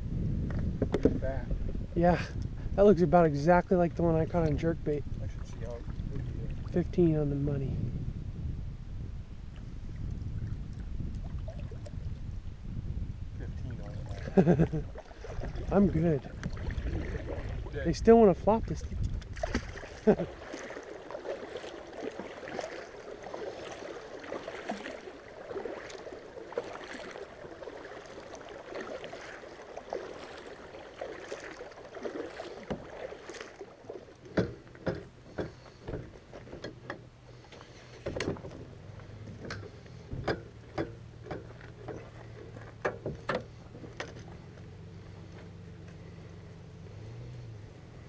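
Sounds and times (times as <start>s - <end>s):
steady low hum: 0.0s - 48.0s
water lapping against kayak hull: 0.4s - 8.0s, 9.4s - 12.7s, 13.4s - 48.0s
sharp knocks and clatter: 34.3s - 37.0s, 39.4s - 42.1s.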